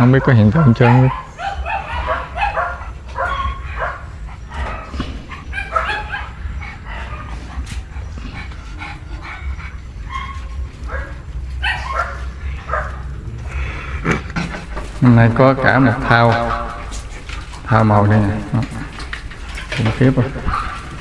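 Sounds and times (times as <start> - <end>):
dogs yipping and whining: 0.0 - 15.0, 15.6 - 21.0.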